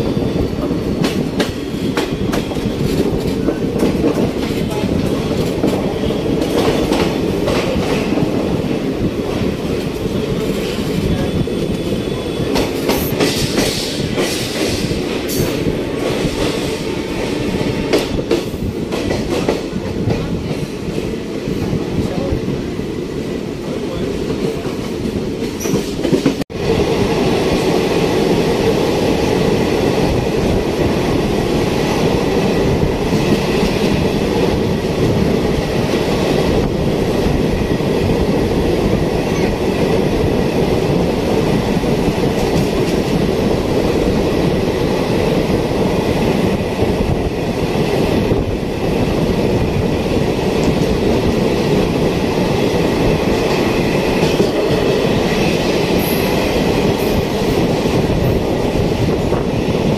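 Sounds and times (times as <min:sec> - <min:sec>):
train wheels rattling on rails: 0:00.0 - 0:59.9
rushing air: 0:07.1 - 0:19.0.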